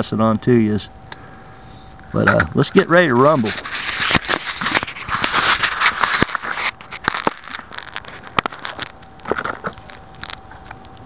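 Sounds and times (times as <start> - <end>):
plastic rubbing and scraping: 3.2 - 10.4.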